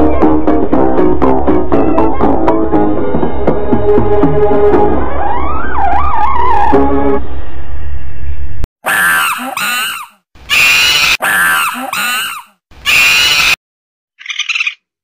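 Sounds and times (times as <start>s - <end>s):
chimpanzee screaming and hooting: 8.9s - 13.6s, 14.2s - 14.8s.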